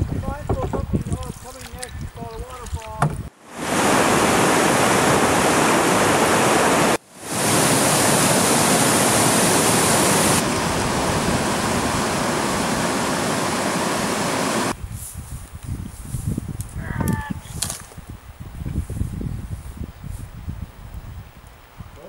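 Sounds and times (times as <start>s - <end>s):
waterfall rushing over rocks: 3.4s - 14.7s.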